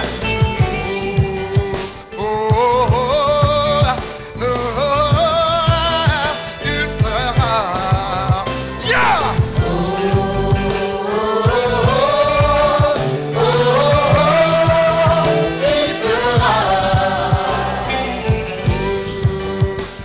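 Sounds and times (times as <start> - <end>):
band with steady drum beat: 0.0 - 20.0
choir singing: 9.0 - 19.9.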